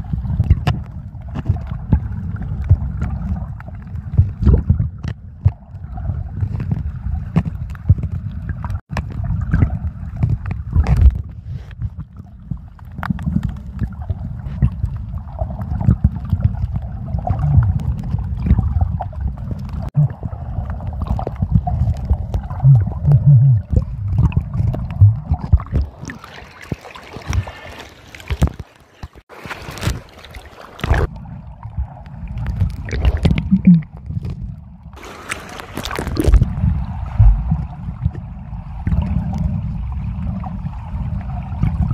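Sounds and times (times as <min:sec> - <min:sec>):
muffled underwater water rumble: 0:00.0 - 0:41.9
underwater bubbles: 0:00.0 - 0:41.9
rush of water: 0:12.8 - 0:41.9.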